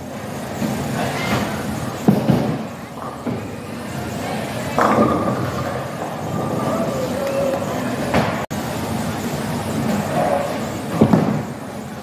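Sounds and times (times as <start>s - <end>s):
crowd chatter: 2.6s - 8.4s
bowling ball rolling on lane: 4.8s - 8.4s.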